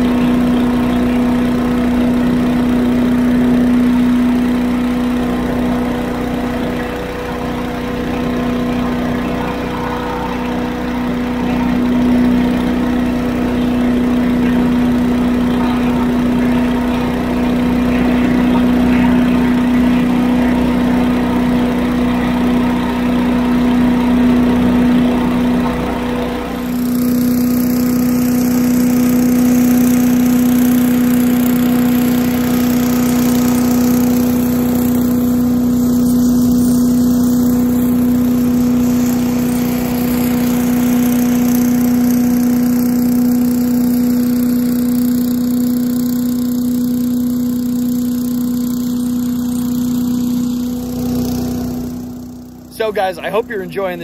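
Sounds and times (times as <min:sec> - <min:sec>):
leaf blower humming: 0:00.0 - 0:54.0
tractor diesel engine: 0:00.0 - 0:54.0.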